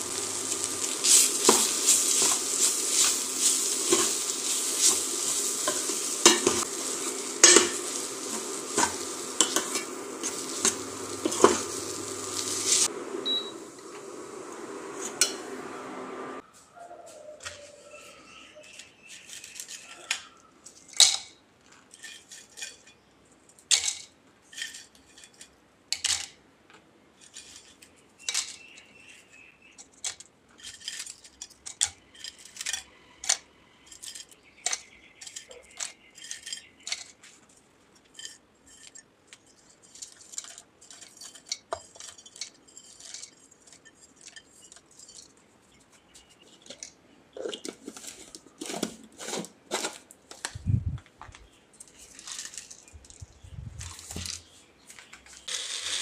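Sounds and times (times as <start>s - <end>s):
chips clattering into plastic jar: 51.3s - 53.2s, 55.3s - 56.0s.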